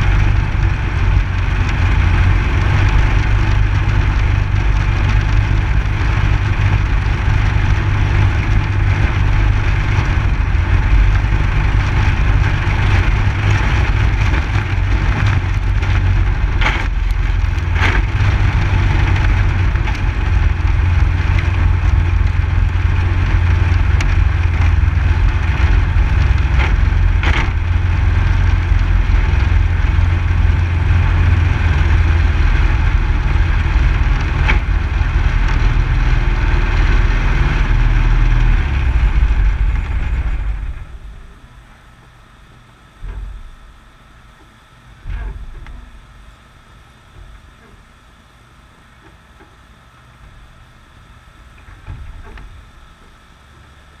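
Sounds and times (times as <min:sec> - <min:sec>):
sharp knocks and rattles: 0:00.0 - 0:31.2
tyres rolling on gravel: 0:00.0 - 0:41.6
race car engine running: 0:00.0 - 0:48.2.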